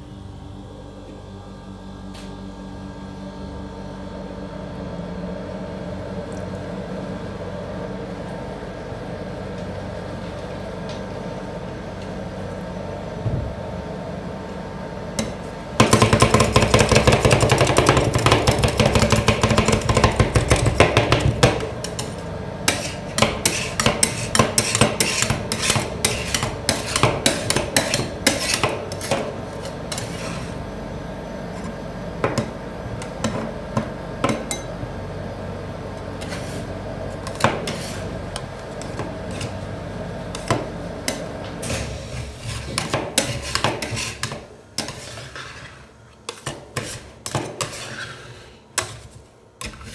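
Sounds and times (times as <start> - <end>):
steady hum: 0.0 - 49.9
spatulas scraping: 17.2 - 30.6, 36.2 - 39.7, 40.3 - 49.9.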